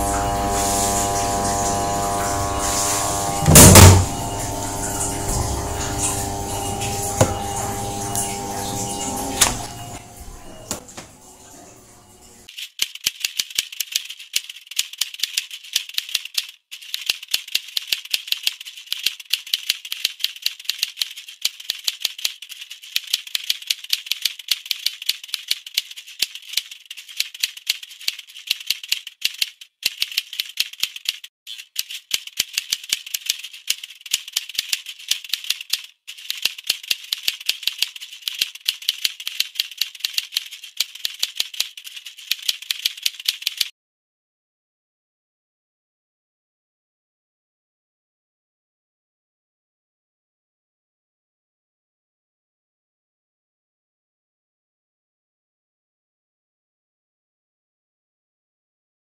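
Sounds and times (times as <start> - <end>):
keyboard typing clicks: 12.5 - 43.7.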